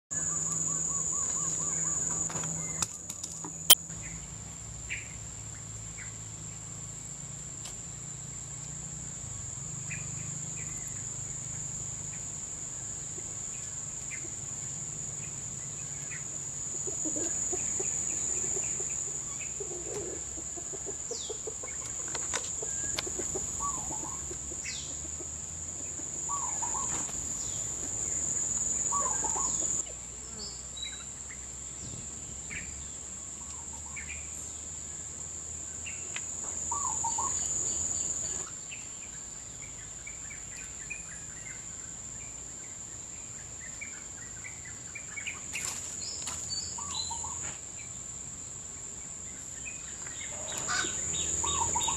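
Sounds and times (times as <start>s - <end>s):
high-pitched insect drone: 49.7s - 51.9s.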